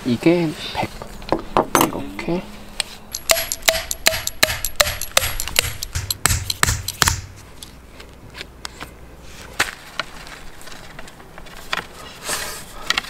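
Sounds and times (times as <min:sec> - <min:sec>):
mallet striking metal tent peg: 0:03.1 - 0:07.4.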